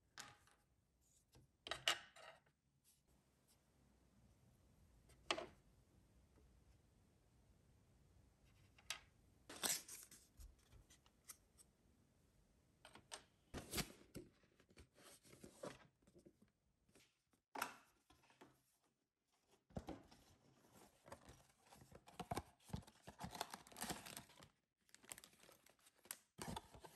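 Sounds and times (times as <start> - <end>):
plastic bag crinkling: 24.9 - 26.2.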